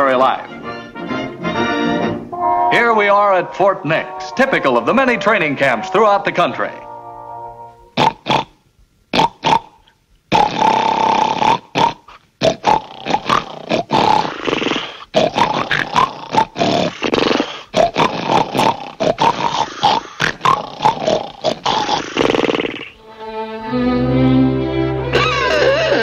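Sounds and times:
cartoon snores and snorts: 0:08.0 - 0:08.5, 0:09.1 - 0:22.9.

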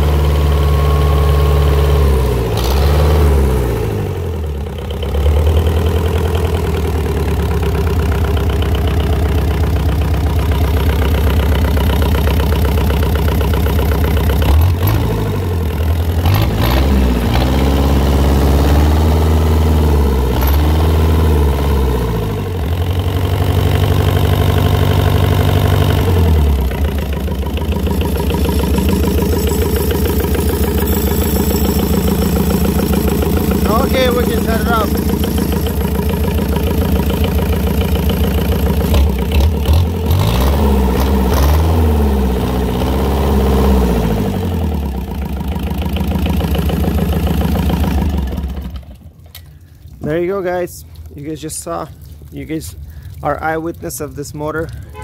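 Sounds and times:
diesel engine idling: 0:00.0 - 0:41.0, 0:41.7 - 0:55.0.

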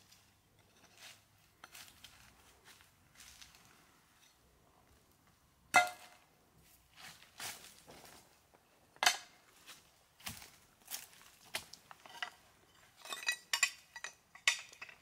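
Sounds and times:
dry leaves and grass rustling: 0:00.0 - 0:05.1, 0:05.9 - 0:08.5, 0:09.3 - 0:13.1.

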